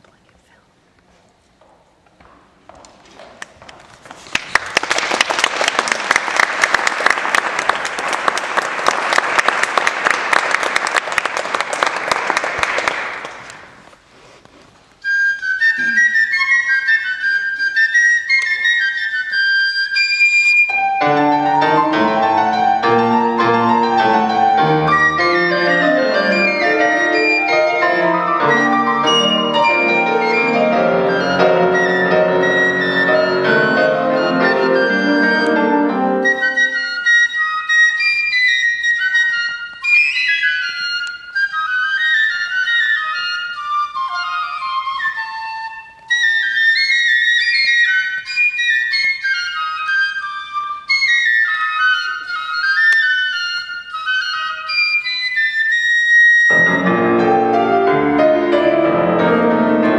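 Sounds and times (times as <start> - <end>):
audience applause: 4.2 - 13.9
piccolo melody: 15.0 - 59.9
piano chords: 20.7 - 37.0, 56.5 - 59.9.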